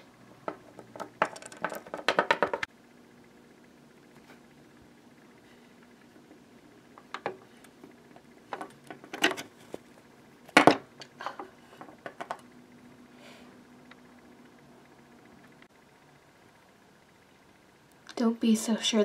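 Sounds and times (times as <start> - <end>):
hard plastic figures clacking: 0.5 - 2.7.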